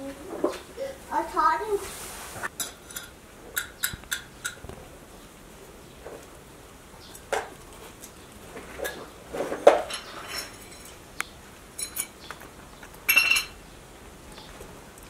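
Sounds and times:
porcupine chewing crunches: 0:07.1 - 0:09.3.

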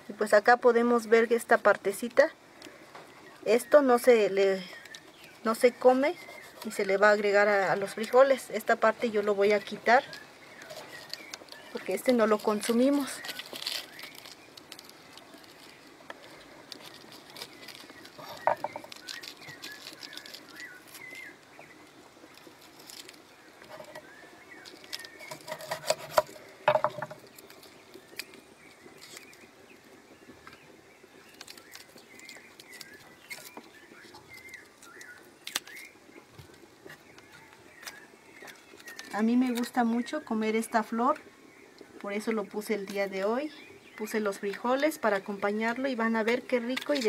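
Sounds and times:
birds chirping: 0:00.1 - 0:47.0.

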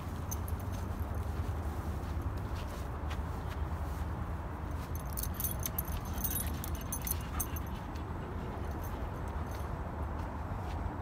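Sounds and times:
small metallic jingling: 0:00.0 - 0:01.4, 0:04.7 - 0:09.8
footsteps on dirt path: 0:00.0 - 0:11.0.

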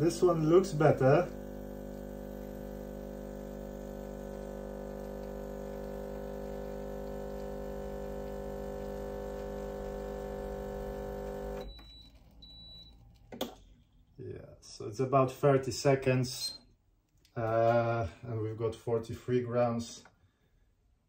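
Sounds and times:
espresso machine pump humming: 0:00.0 - 0:11.7.

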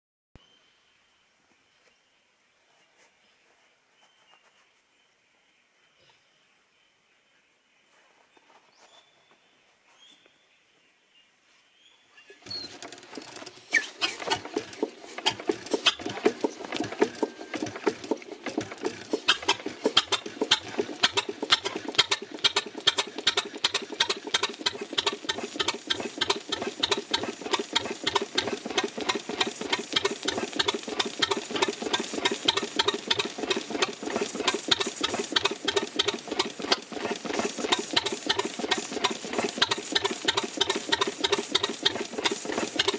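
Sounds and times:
stationary engine clattering: 0:12.4 - 0:42.9.

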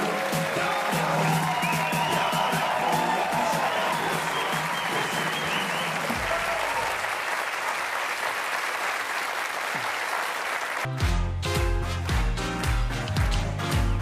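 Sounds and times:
audience applauding: 0:00.0 - 0:11.1
music with strong bass line: 0:10.9 - 0:14.0.

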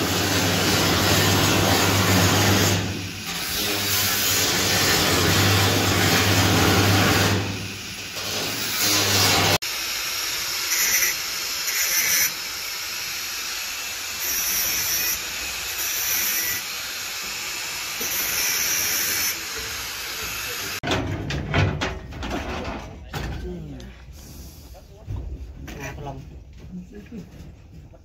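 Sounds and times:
angle grinder cutting steel: 0:00.0 - 0:20.8
small angle grinder hiss: 0:09.7 - 0:20.8.

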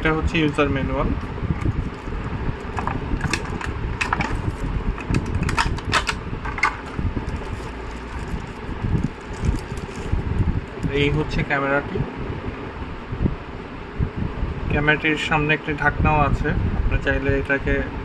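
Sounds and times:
low hum: 0:00.0 - 0:14.8
wrapping rustling: 0:01.7 - 0:11.2.

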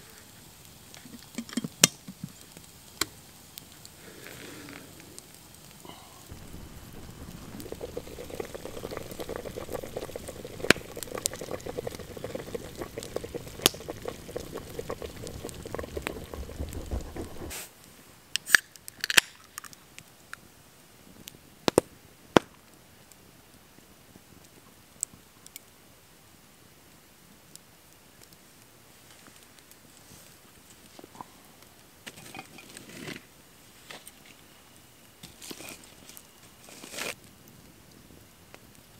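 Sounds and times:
water boiling in a pot: 0:00.0 - 0:17.6, 0:29.0 - 0:33.7, 0:34.6 - 0:38.9
sharp clicks and pops: 0:06.3 - 0:17.5.

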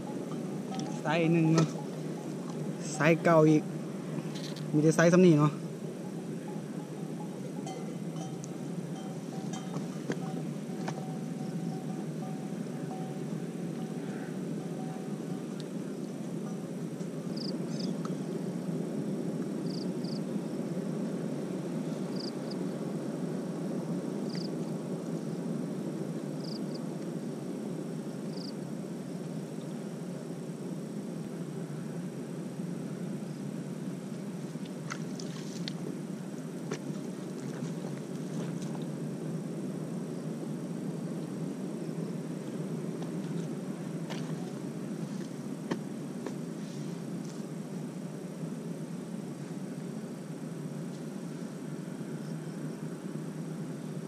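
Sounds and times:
low rumbling noise: 0:00.0 - 0:24.2.

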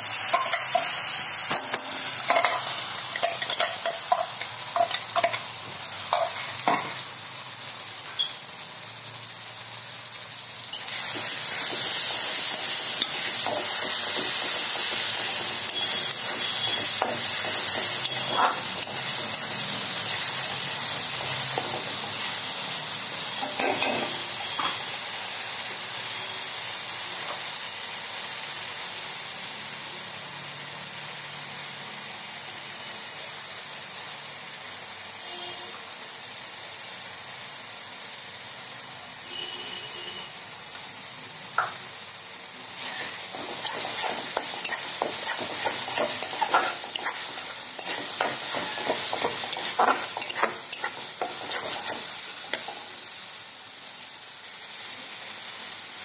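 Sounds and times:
paste sizzling in hot oil: 0:00.0 - 0:56.0
metal spatula scraping pan: 0:42.8 - 0:52.8.

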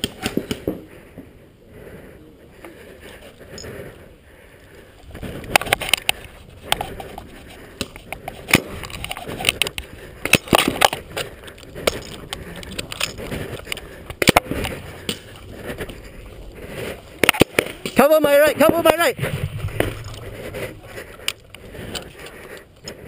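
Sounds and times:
paintballs hitting inflatable bunkers: 0:00.0 - 0:00.9, 0:07.8 - 0:11.0, 0:14.1 - 0:15.4, 0:17.2 - 0:20.0
paintball markers firing: 0:09.6 - 0:11.0, 0:14.1 - 0:15.3, 0:17.2 - 0:18.0
player rustling: 0:18.9 - 0:22.8.

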